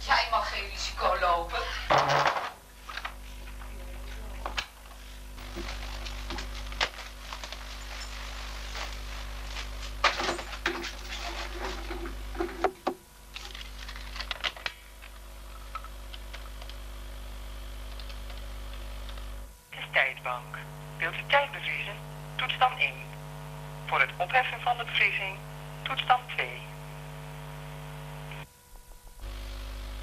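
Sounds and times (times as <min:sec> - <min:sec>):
low electrical hum: 0:00.0 - 0:30.0
person moving about a room: 0:02.8 - 0:14.6.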